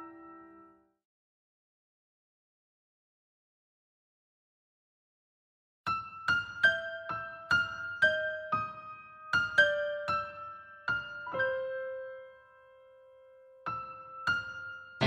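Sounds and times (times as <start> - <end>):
piano melody: 0.0 - 0.9, 6.0 - 15.0.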